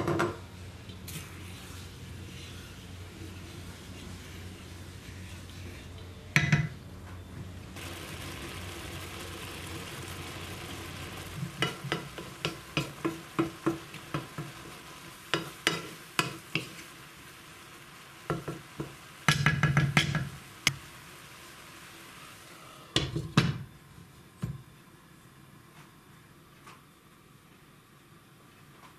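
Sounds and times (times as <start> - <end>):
water hissing in pan: 0.6 - 6.3, 7.8 - 23.7
spoon knocking against pan: 18.3 - 20.3.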